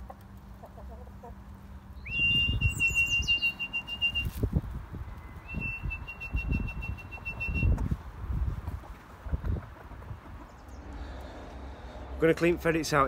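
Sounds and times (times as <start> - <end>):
person whistling high notes: 2.1 - 4.4, 5.3 - 7.8.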